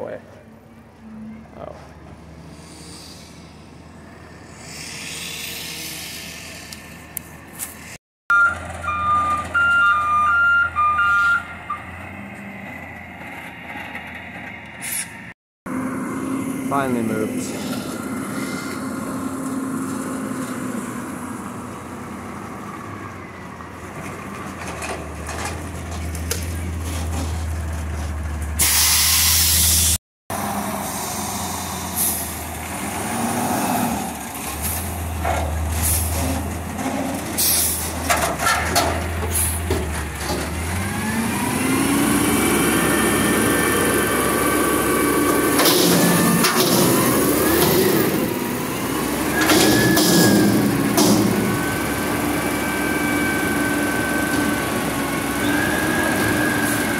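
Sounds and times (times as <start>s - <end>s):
engine revving whine: 2.1s - 8.6s, 15.7s - 23.6s, 39.7s - 56.9s
air brake hiss: 2.4s - 3.6s, 4.5s - 6.7s, 14.8s - 15.2s, 28.6s - 30.0s, 30.8s - 32.3s
garbage truck engine running: 34.2s - 56.9s
knocks and clangs on metal dumpster: 49.4s - 51.5s.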